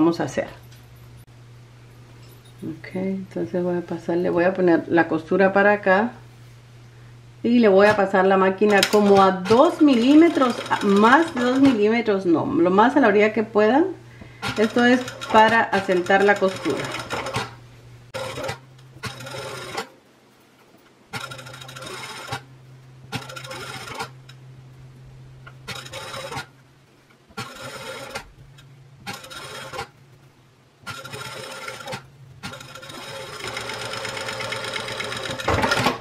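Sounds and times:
steady low hum: 0.0s - 36.0s
sewing machine stitching: 7.8s - 11.8s, 14.4s - 17.6s, 18.2s - 19.9s, 21.1s - 22.5s, 23.1s - 24.2s, 25.6s - 26.5s, 27.4s - 28.3s, 29.0s - 30.0s, 30.8s - 36.0s.

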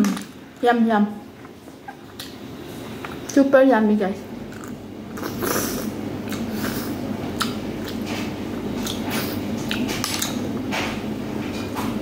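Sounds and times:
wet chewing and lip smacking: 6.3s - 6.7s, 7.4s - 10.4s.

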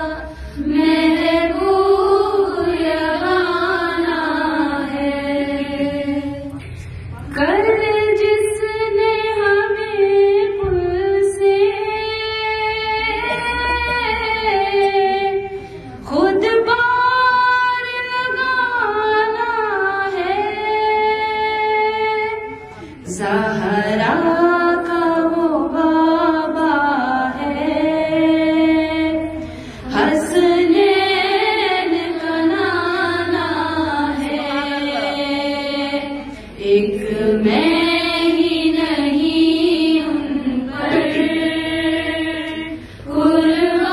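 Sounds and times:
woman singing unaccompanied: 7.3s - 43.9s.

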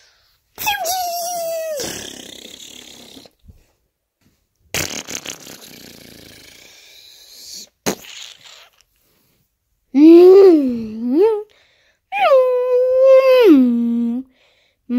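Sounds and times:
child making explosion noises: 0.6s - 3.3s.

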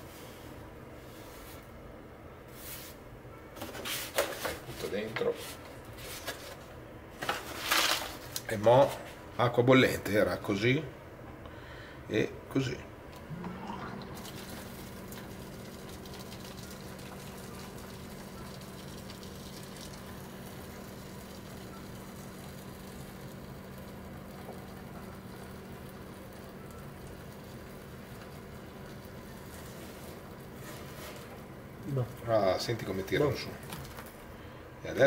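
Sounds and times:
pump motor humming: 13.1s - 32.0s
water pouring into plastic tray: 13.4s - 30.4s.

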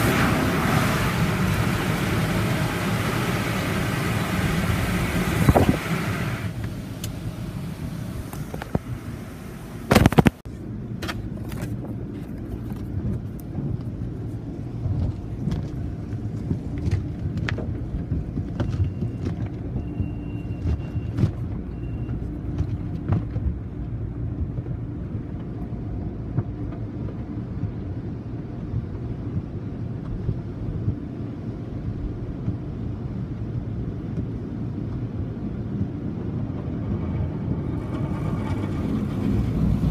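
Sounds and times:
car wash machinery and water: 0.0s - 39.9s.

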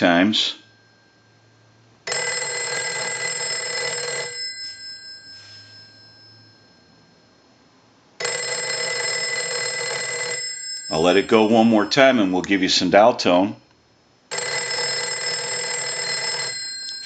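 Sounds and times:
telephone bells ringing: 2.1s - 7.3s, 8.2s - 12.1s, 14.3s - 17.0s.

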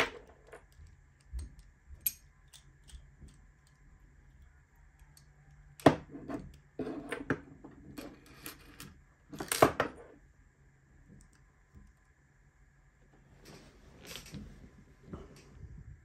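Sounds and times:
metal tools clattering on wooden desk: 14.0s - 14.6s.

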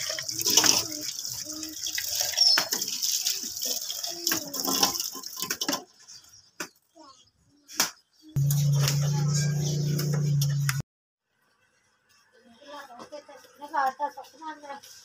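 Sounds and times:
tap water running and splashing: 0.0s - 6.1s.

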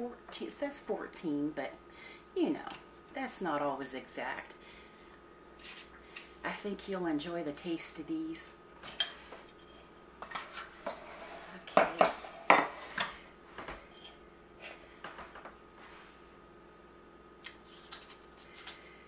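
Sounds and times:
spoon scraping a mixing bowl: 9.0s - 13.0s.

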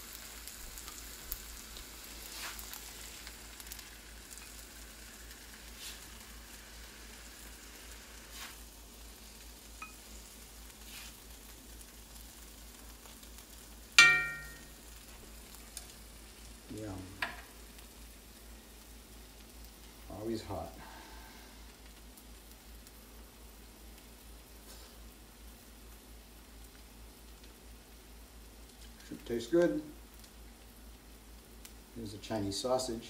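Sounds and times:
rice sizzling in a wok: 0.0s - 33.0s
spatula scraping wok: 2.2s - 2.9s, 5.6s - 6.2s, 8.2s - 8.7s, 10.8s - 11.2s
loud ringing clank: 14.0s - 14.7s.

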